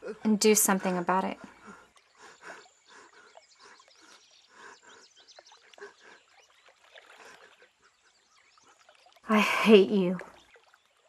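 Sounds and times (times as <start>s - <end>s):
faint nature ambience: 0.0s - 11.0s
bird chirps: 1.5s - 6.7s.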